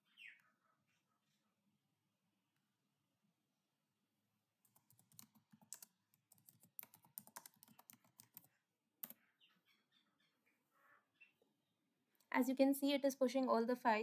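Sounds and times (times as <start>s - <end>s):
typing on computer keyboard: 4.7s - 9.2s.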